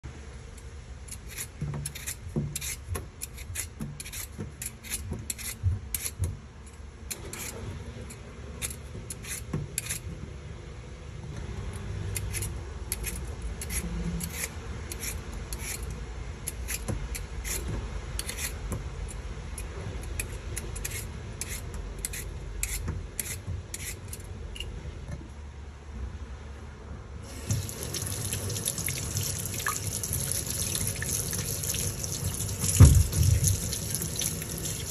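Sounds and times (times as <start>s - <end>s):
peeler scraping potatoes: 1.1s - 6.4s, 7.1s - 10.1s, 12.1s - 24.7s, 27.3s - 34.9s
tap running into metal sink: 27.4s - 34.9s.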